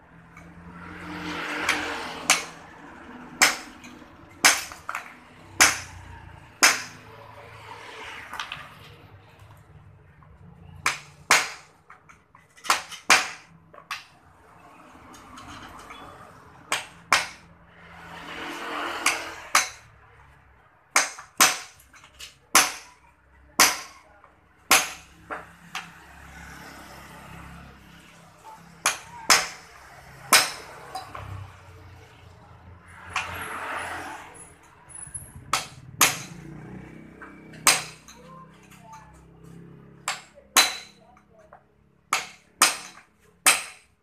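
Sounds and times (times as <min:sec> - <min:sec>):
hammer striking metal: 0:03.4 - 0:06.0, 0:06.6 - 0:07.0, 0:16.7 - 0:17.5, 0:18.4 - 0:19.9, 0:21.0 - 0:21.8, 0:22.5 - 0:23.0, 0:23.6 - 0:24.0, 0:24.7 - 0:25.9, 0:28.8 - 0:29.7, 0:30.3 - 0:31.2, 0:35.4 - 0:36.4, 0:37.5 - 0:38.3, 0:40.0 - 0:41.2, 0:42.1 - 0:43.9.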